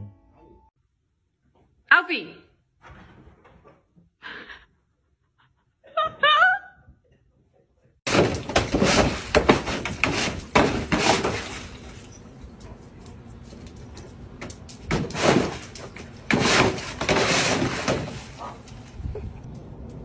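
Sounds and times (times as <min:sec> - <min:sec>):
dog splashing water in pool: 0:08.1 - 0:18.9.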